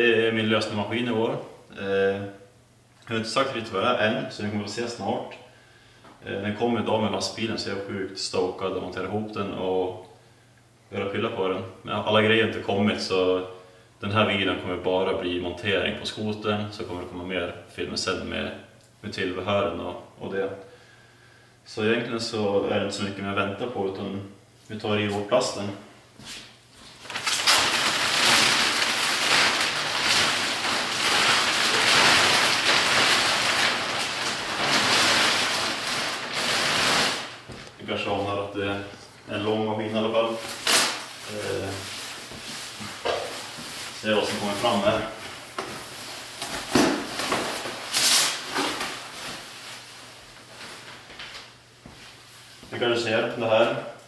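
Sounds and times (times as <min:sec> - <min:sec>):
plastic wrap crinkling: 0:26.8 - 0:38.3, 0:39.9 - 0:51.6.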